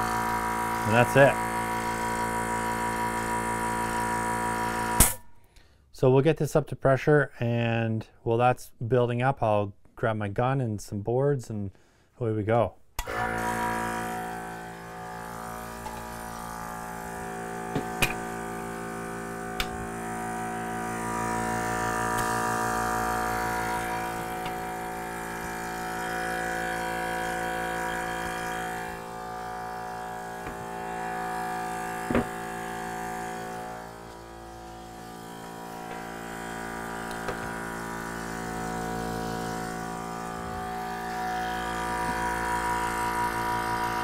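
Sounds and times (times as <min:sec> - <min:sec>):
air compressor running: 0:00.0 - 0:05.3, 0:13.0 - 0:44.0.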